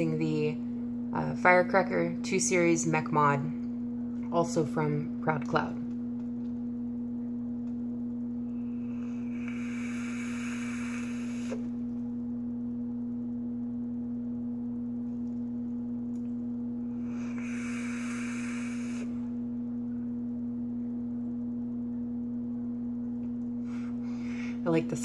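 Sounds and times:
loud steady hum: 0.0s - 25.0s
airy hiss of vape inhaling: 8.7s - 11.7s, 16.9s - 19.3s.

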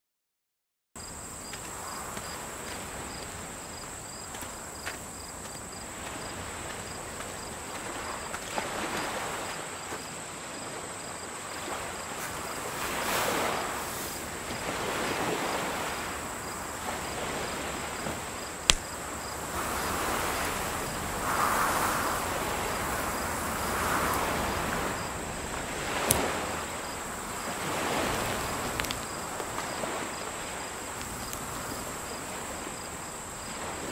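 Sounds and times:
crickets chirping: 1.0s - 33.9s
soft rushing swells: 15.9s - 33.4s
sharp clicks: 18.7s - 19.0s, 28.2s - 29.5s.

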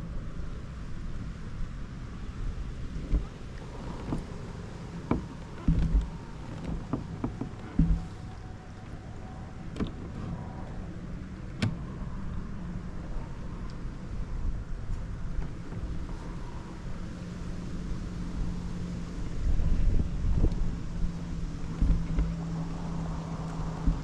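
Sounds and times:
wind rumble on microphone: 0.0s - 24.0s
knocks and clicks from hull: 2.9s - 8.8s, 21.6s - 24.0s.

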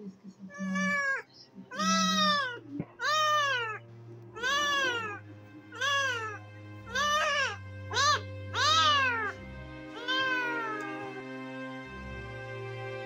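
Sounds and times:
kitten meowing in distress: 0.6s - 3.8s, 4.4s - 11.2s.

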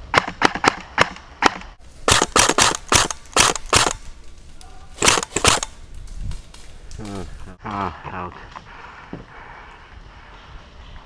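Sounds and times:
airsoft rifle shots: 0.1s - 4.2s, 5.0s - 5.8s.

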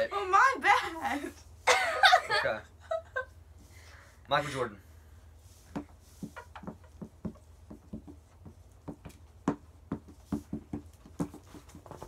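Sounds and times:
marker strokes on whiteboard: 5.4s - 12.0s.

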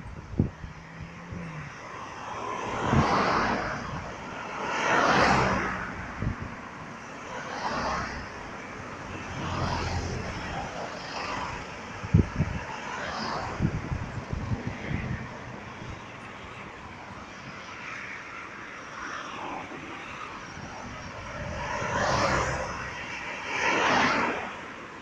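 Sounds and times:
cars passing on highway: 0.0s - 25.0s
wind thumps on microphone: 12.0s - 12.6s, 13.4s - 15.4s.

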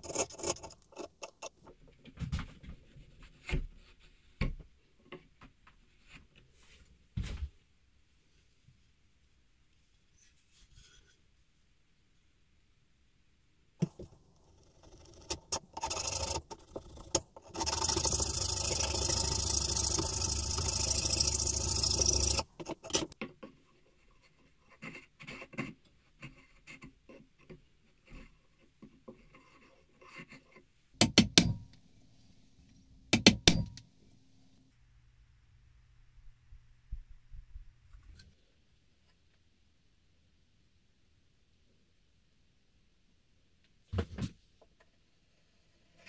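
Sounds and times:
hand tool scraping wood: 0.0s - 1.6s, 13.8s - 23.2s
continuous rasping: 0.0s - 1.8s, 13.8s - 31.7s
paring cuts and clicks: 33.2s - 33.9s.

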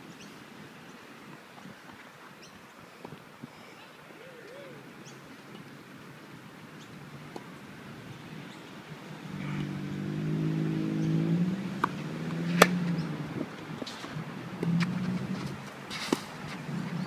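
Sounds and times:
vehicle engine passing by: 9.0s - 13.6s
racket hitting tennis ball: 11.8s - 13.0s.

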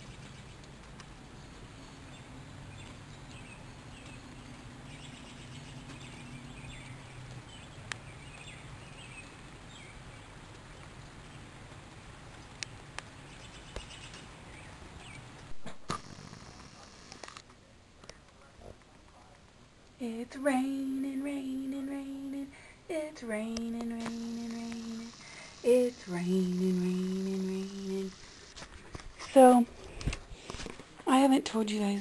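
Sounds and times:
steady rain: 5.9s - 17.3s, 23.7s - 28.7s
low hum: 20.0s - 28.6s.

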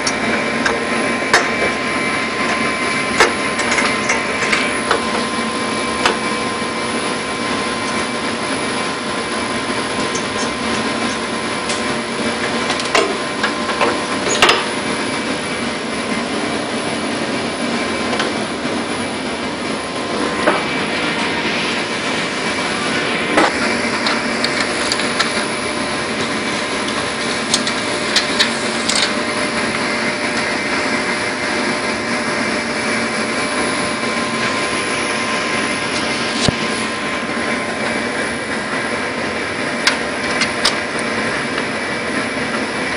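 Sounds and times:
rushing machine noise with hum: 0.0s - 42.9s
sharp clicks and knocks: 12.7s - 14.7s.

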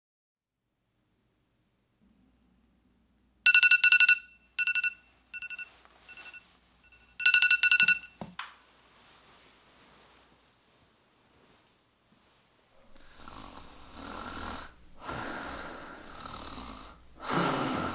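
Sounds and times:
phone alarm beeping: 3.5s - 8.2s
soft rustle: 5.2s - 7.1s, 8.6s - 13.0s.

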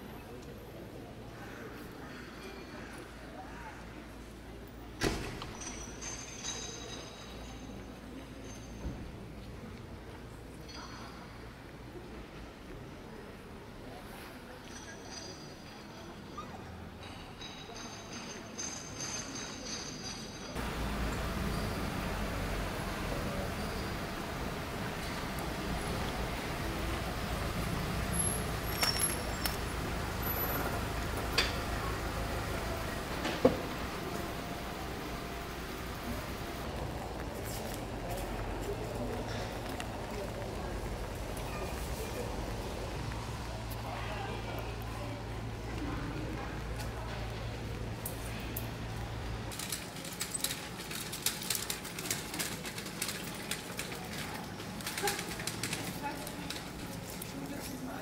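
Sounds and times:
footsteps on wet cobblestones: 20.6s - 58.0s
road traffic hum: 20.6s - 58.0s.

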